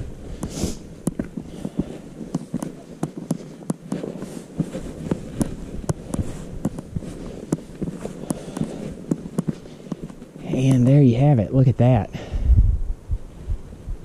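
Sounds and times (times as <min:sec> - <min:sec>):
boots clicking and scuffing on rock: 0:00.0 - 0:11.1.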